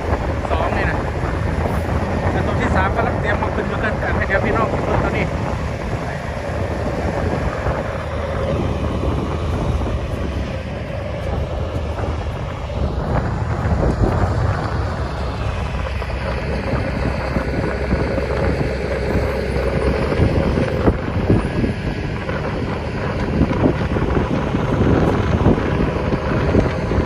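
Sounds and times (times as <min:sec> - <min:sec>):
diesel engines rumbling: 0:00.0 - 0:27.0
wind buffeting microphone: 0:00.0 - 0:27.0.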